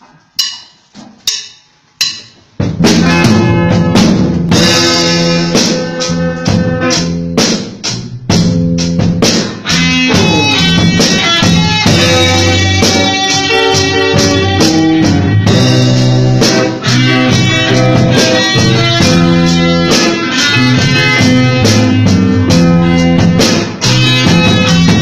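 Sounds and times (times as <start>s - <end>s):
drumstick count-in clicks: 0.4s - 2.4s
rock band playing slow song: 2.4s - 25.0s.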